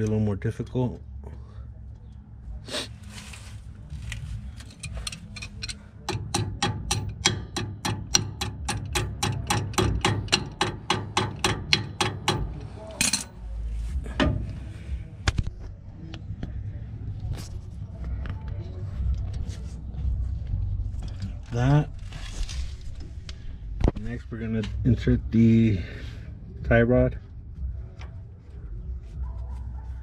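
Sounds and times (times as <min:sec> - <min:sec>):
metallic clatter: 0:04.6 - 0:13.4
ratchet wrench clicking: 0:04.7 - 0:13.3.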